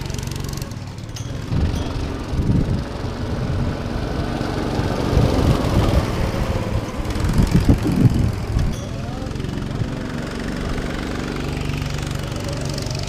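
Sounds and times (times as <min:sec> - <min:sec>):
go-kart engines: 0:00.0 - 0:13.0.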